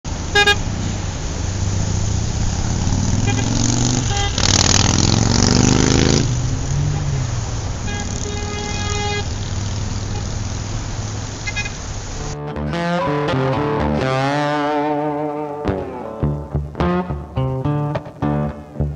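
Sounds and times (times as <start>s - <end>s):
traffic engines rumbling: 0.0s - 18.9s
vehicle rushing past: 0.1s - 14.9s
car horns tooting: 0.3s - 0.8s, 3.0s - 10.5s, 11.4s - 13.4s.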